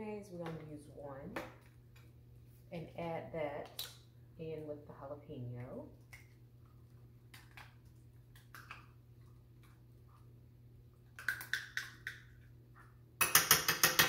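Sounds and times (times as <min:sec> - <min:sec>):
spoon tapping a dish: 0:13.2 - 0:14.0.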